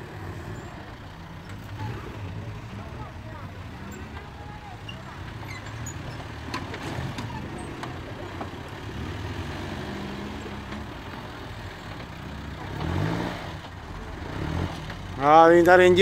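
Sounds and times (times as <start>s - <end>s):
car engine under load: 0.0s - 16.0s.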